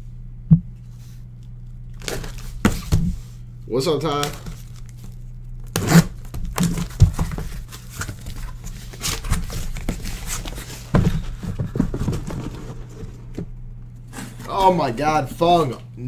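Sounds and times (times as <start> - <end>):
low steady hum: 0.0 - 16.0
cardboard flaps scraping and rustling: 2.0 - 3.3, 4.0 - 14.7.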